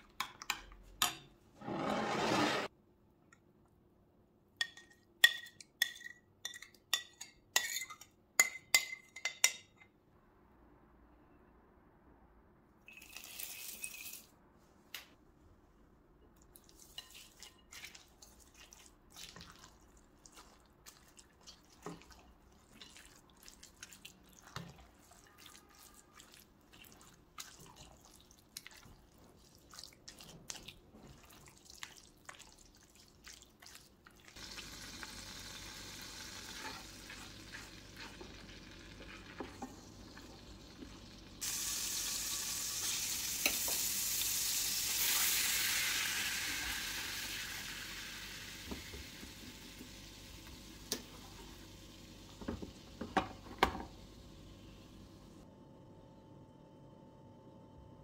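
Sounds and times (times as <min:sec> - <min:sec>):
spoon stirring wet salad: 0:04.6 - 0:09.6, 0:16.4 - 0:34.4
butter sizzling in a pot: 0:34.4 - 0:54.2.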